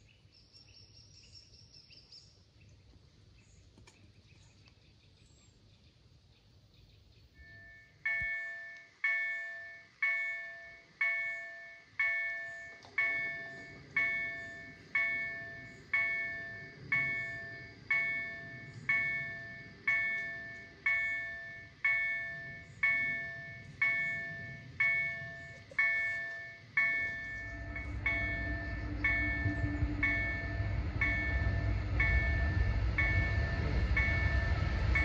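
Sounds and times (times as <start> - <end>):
low rumble of train: 0.0 - 35.0
level crossing warning bell: 7.4 - 35.0.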